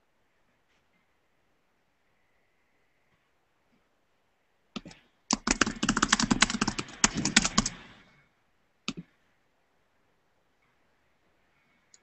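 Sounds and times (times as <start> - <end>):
computer keyboard typing: 4.8 - 7.9.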